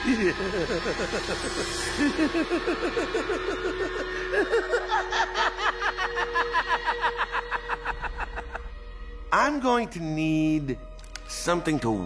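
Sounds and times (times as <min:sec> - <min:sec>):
maniacal cackling laugh: 0:00.0 - 0:08.8.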